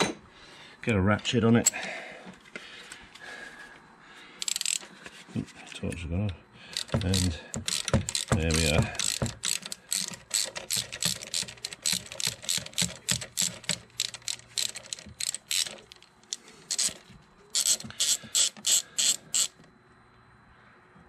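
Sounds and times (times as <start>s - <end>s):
socket ratchet clicking: 4.4s - 4.8s, 6.7s - 19.6s.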